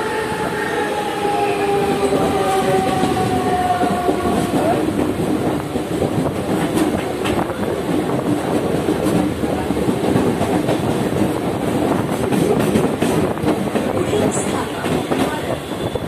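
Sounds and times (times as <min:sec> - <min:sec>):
train wheels rumbling on rails: 0:00.0 - 0:16.0
clacks over rail joints: 0:04.0 - 0:15.9.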